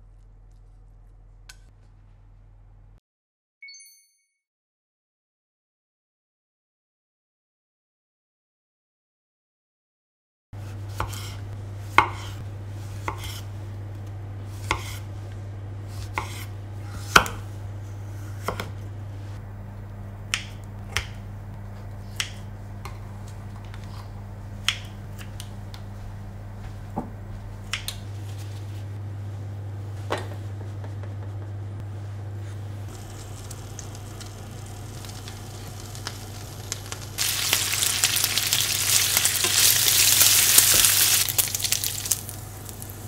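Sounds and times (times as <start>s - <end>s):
steady low hum: 10.6s - 43.0s.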